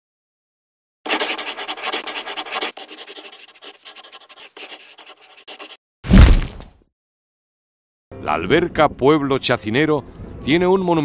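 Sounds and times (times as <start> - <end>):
pencil scratching on paper: 1.1 - 5.8.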